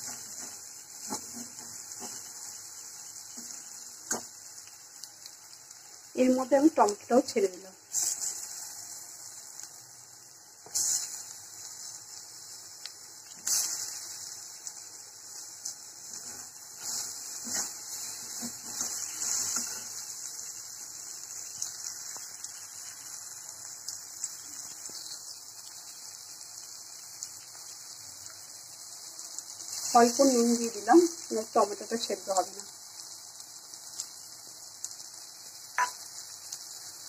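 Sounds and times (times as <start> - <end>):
spatula scraping a pan: 0.0 - 2.3, 16.0 - 20.0
masala sizzling in oil: 0.0 - 37.0.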